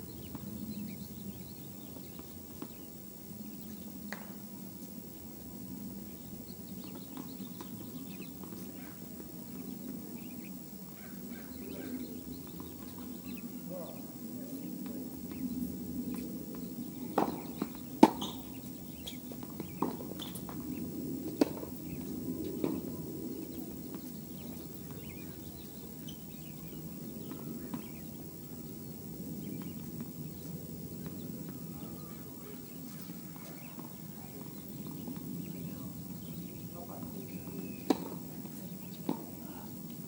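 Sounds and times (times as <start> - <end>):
low background hum: 0.0 - 40.0
tennis ball pops: 37.8 - 38.2.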